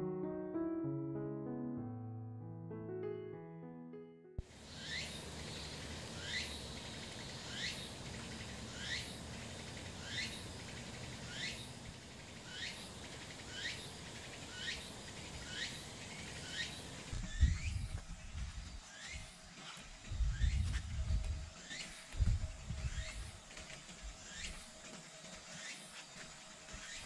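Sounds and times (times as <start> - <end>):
steady background hiss: 4.4 - 17.2.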